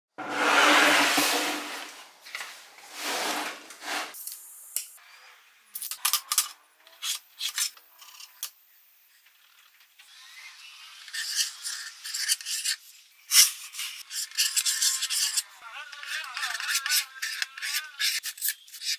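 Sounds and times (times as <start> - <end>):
plywood sheet sliding: 0.2 - 4.2
compass pencil scratching circle: 13.4 - 18.9
pencil scratching along ruler: 13.8 - 18.9.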